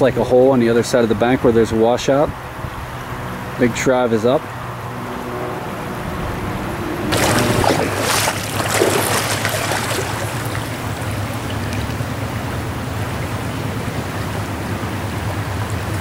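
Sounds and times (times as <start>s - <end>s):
rush of fast-flowing stream: 7.1s - 16.0s.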